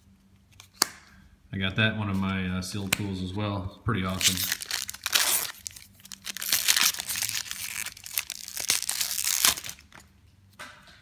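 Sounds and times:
foil wrapper crinkling and tearing: 0:04.1 - 0:10.0.

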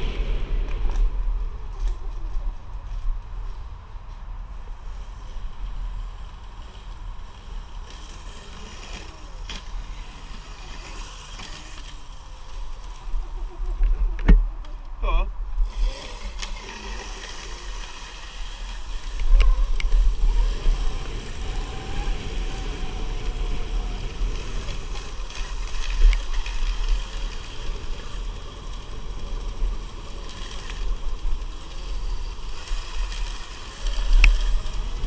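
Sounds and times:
wind buffeting microphone: 0:12.6 - 0:35.0
electric motor whine: 0:15.6 - 0:35.0.

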